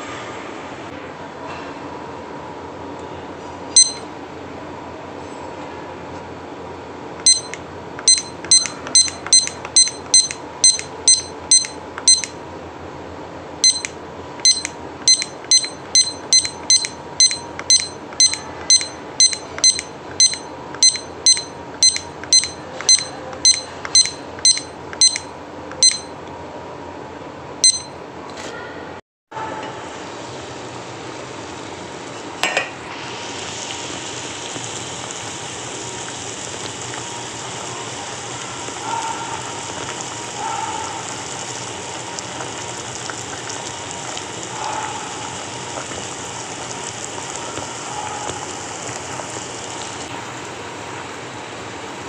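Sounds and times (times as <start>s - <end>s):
kitchen timer beeps: 3.7s - 4.1s, 7.2s - 12.4s, 13.6s - 26.2s, 27.6s - 28.0s.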